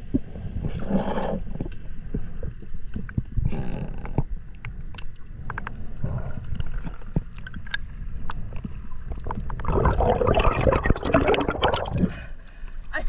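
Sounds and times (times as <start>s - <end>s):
water churning and bubbles: 0.0s - 12.4s
muffled underwater rumble: 0.0s - 12.6s
sharp underwater clicks: 1.6s - 11.9s.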